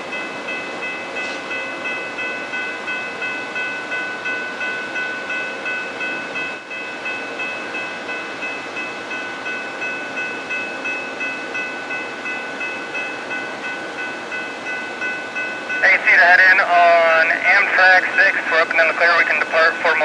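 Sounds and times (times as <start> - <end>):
crossing bell ringing: 0.0 - 20.0
passenger train passing: 0.0 - 20.0.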